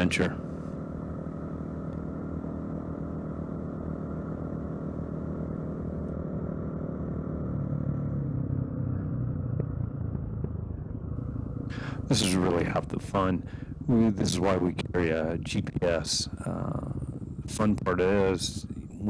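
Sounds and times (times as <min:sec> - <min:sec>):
dirt bike engine running: 0:00.0 - 0:19.0.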